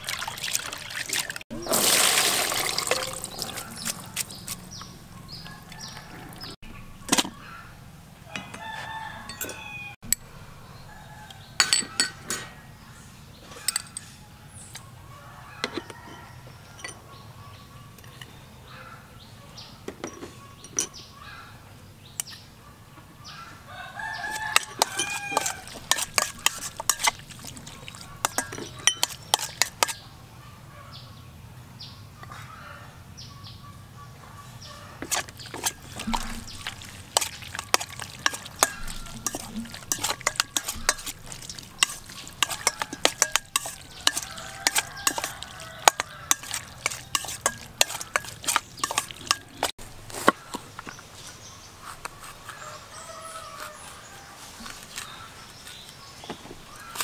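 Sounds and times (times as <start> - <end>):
chickens calling: 0.0 - 10.0, 22.6 - 31.1, 32.1 - 57.0
spoon clinking against metal bowl: 2.6 - 4.5, 9.3 - 10.2, 11.6 - 12.4, 16.8 - 17.0, 24.3 - 30.0, 35.0 - 49.7
rooster crowing: 8.2 - 10.0, 23.6 - 25.8, 44.0 - 46.4, 52.6 - 54.3.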